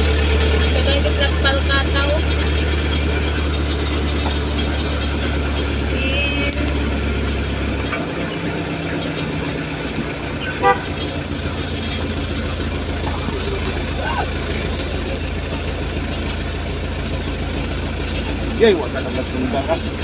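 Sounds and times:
vehicle running on road: 0.0s - 20.0s
short horn toot: 10.4s - 11.4s.

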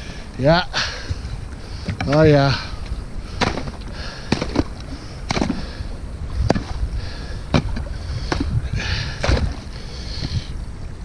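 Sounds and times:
water sloshing and splashing: 0.0s - 11.0s
sharp knocks and clunks: 3.4s - 5.7s, 6.4s - 6.8s, 7.5s - 8.6s, 9.2s - 9.6s.

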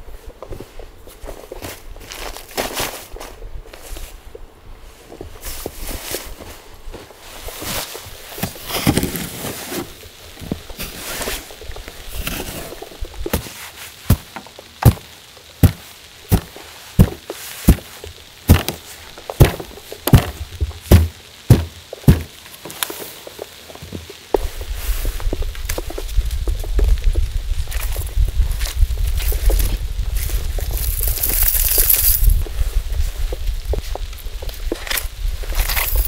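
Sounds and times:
sharp thuds: 18.5s - 18.8s, 19.4s - 22.4s
gear rustling: 29.2s - 32.4s, 34.8s - 36.0s.

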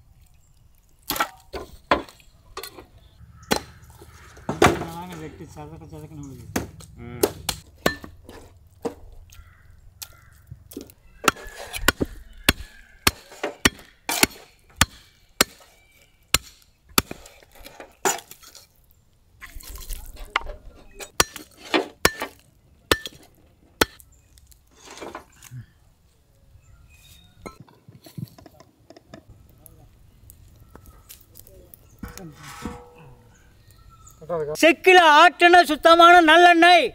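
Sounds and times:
cleavers chopping on wooden block: 3.5s - 5.0s, 6.5s - 9.1s, 10.0s - 15.7s, 16.3s - 17.3s.

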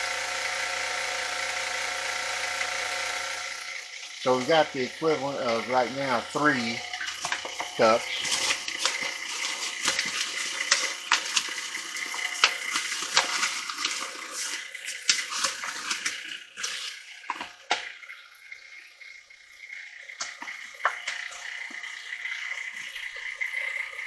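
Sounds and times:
stand mixer running: 0.0s - 24.0s
paper bag crinkling and rustling: 4.2s - 17.8s.

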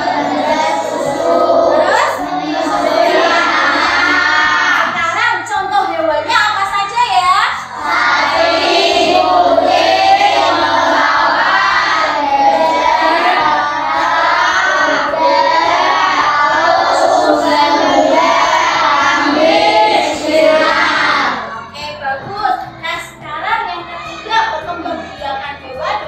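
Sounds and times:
children singing: 0.0s - 5.0s, 7.6s - 21.7s.

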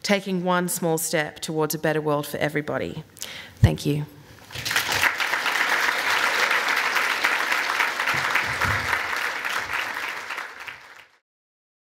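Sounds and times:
audience applauding: 4.5s - 11.2s.

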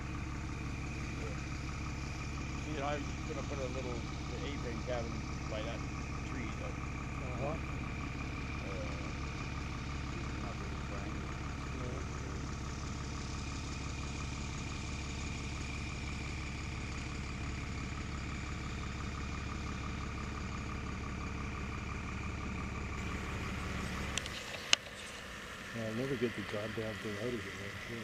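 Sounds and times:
motor humming: 0.0s - 13.1s, 22.9s - 28.0s.

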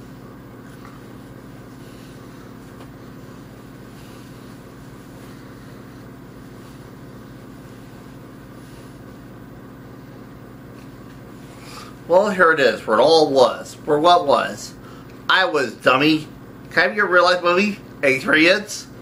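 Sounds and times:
low hum: 0.0s - 16.8s.

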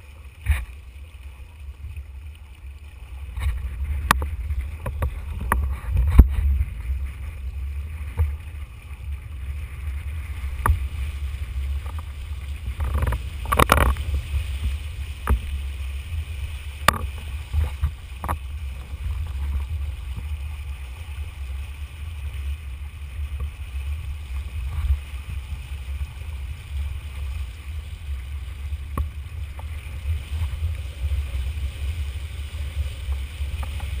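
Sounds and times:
rushing water: 0.0s - 34.0s
wind rumble: 0.0s - 34.0s.

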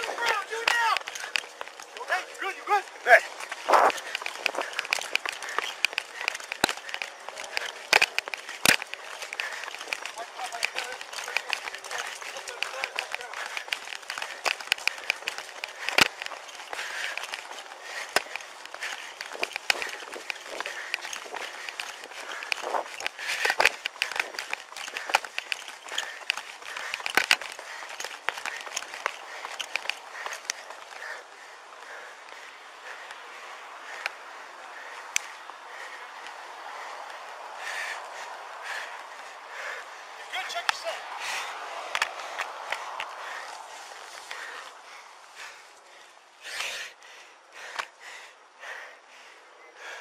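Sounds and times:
clothing and gear rattling: 0.0s - 33.1s, 40.4s - 46.9s
running footsteps: 0.0s - 50.0s
microphone rubbing and clicks: 3.6s - 6.8s.

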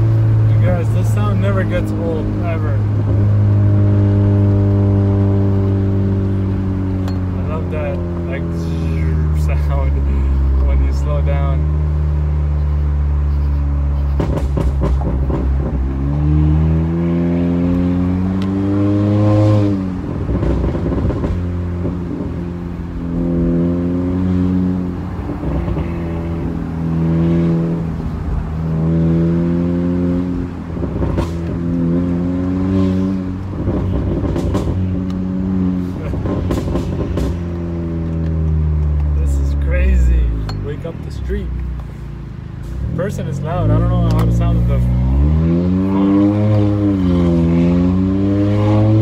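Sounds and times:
car exhaust drone: 0.0s - 49.0s
exhaust crackles and pops: 13.9s - 16.0s, 20.1s - 22.4s, 33.4s - 35.3s, 35.9s - 39.2s.

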